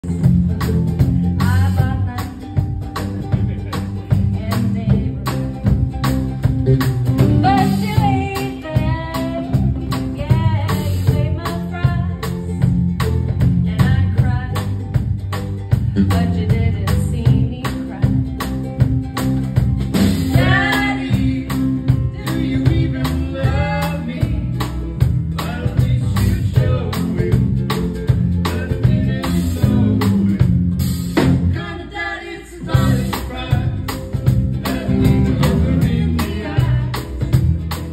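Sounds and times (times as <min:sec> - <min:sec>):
steady beat: 0:00.0 - 0:31.9, 0:32.6 - 0:37.9
strummed ukulele: 0:00.0 - 0:37.9
woman singing: 0:01.3 - 0:02.8, 0:04.1 - 0:05.7, 0:07.2 - 0:12.7, 0:13.4 - 0:14.9, 0:15.9 - 0:18.5, 0:20.2 - 0:24.7, 0:31.4 - 0:34.0, 0:34.6 - 0:37.5.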